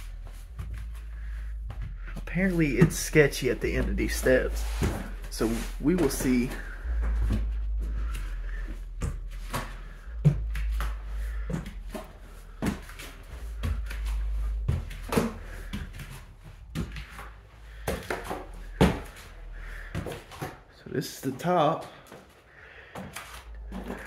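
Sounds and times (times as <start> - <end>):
footsteps on wooden stairs: 0.0 - 20.8.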